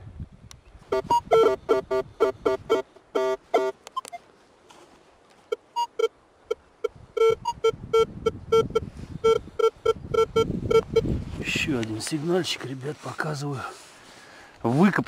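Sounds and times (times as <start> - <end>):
metal detector low beeps: 0.9 - 4.2, 5.5 - 11.1.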